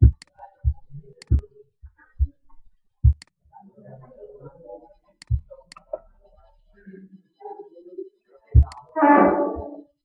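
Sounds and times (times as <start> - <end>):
computer mouse clicks: 0.1 - 0.4, 1.2 - 1.5, 5.2 - 5.9, 8.6 - 8.9.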